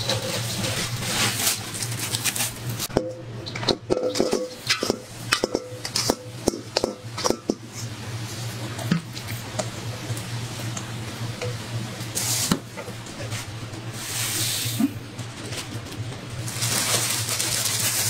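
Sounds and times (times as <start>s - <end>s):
metal bowl clinking and scraping: 0.0s - 7.9s
steady low hum: 0.0s - 17.7s.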